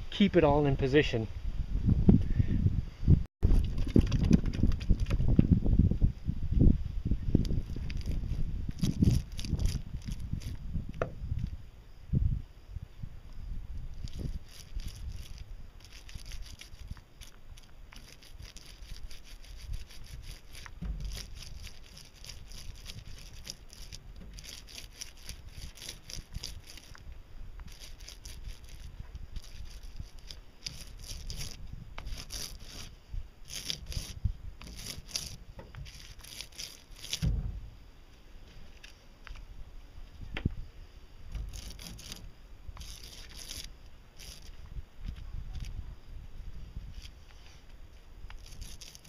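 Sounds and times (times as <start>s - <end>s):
paint roller crackling on fiberglass: 7.6s - 10.6s, 14.0s - 27.0s, 27.6s - 37.3s, 41.3s - 44.6s, 48.3s - 49.0s
low bump: 37.2s - 37.9s.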